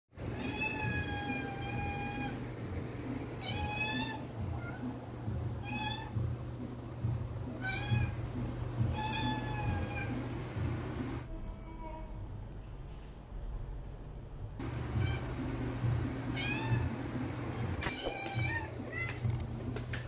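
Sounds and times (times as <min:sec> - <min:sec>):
cat meowing: 0:00.3 - 0:02.4, 0:03.4 - 0:05.0, 0:05.6 - 0:06.2, 0:07.5 - 0:08.2, 0:08.8 - 0:10.3, 0:16.3 - 0:17.0, 0:17.6 - 0:19.3.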